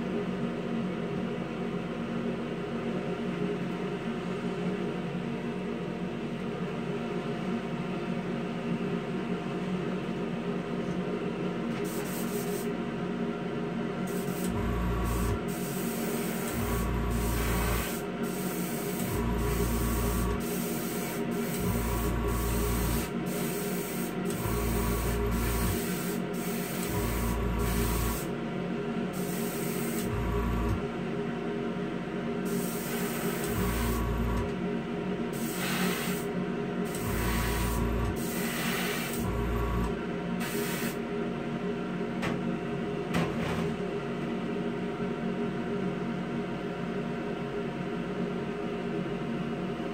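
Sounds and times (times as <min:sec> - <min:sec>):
spray booth fan humming: 0:10.5 - 0:43.1
airbrush spraying hiss: 0:11.9 - 0:12.7, 0:14.1 - 0:28.3, 0:29.2 - 0:30.1, 0:32.5 - 0:34.0, 0:35.4 - 0:36.3, 0:36.9 - 0:39.2, 0:40.4 - 0:41.0
airbrush compressor running: 0:14.1 - 0:28.3, 0:29.2 - 0:30.8, 0:32.5 - 0:34.5, 0:35.4 - 0:36.3, 0:36.9 - 0:41.0.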